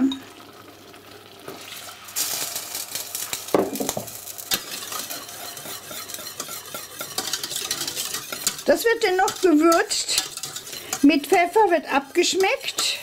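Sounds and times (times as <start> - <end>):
sauce hissing in pot: 0.0 - 13.0
whisk scraping against pot: 4.5 - 13.0.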